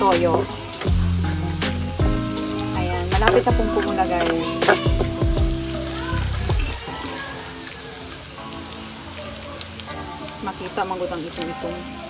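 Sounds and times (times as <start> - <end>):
garlic sizzling in hot oil: 0.0 - 12.0
spatula scraping pan: 3.2 - 5.9.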